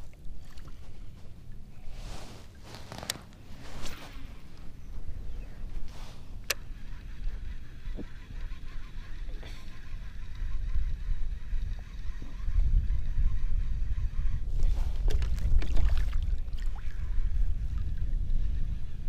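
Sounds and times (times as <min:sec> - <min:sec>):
wind buffeting microphone: 0:00.0 - 0:19.0
short clicks and rustles: 0:02.6 - 0:04.0.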